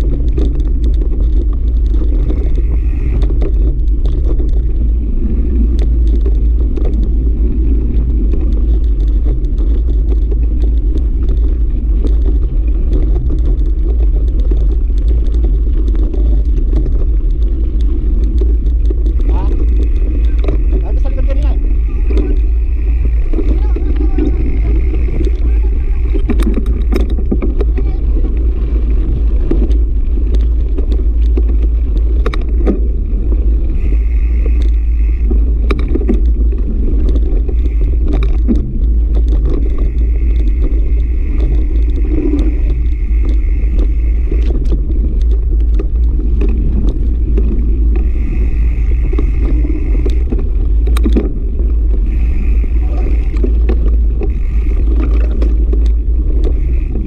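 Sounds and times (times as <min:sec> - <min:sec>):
bike rattling over gravel: 0:00.0 - 0:57.0
wind buffeting microphone: 0:00.0 - 0:57.0.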